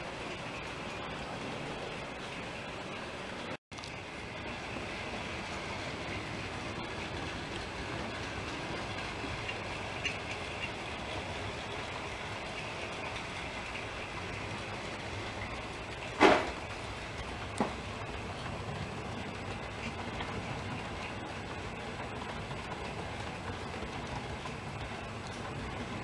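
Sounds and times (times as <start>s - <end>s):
model train wheels rumbling on rail: 0.0s - 26.0s
sharp knock: 16.2s - 16.6s.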